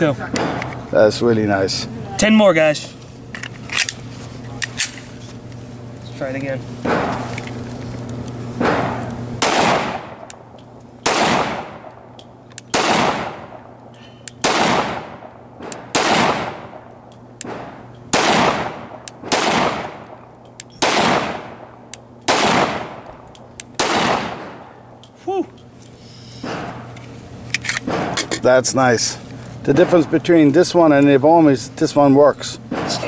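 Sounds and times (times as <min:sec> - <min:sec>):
pistol shots with echo: 0:08.6 - 0:12.1, 0:12.7 - 0:13.8, 0:14.4 - 0:20.2, 0:20.8 - 0:23.0, 0:23.8 - 0:24.7, 0:27.8 - 0:28.2, 0:32.7 - 0:33.0.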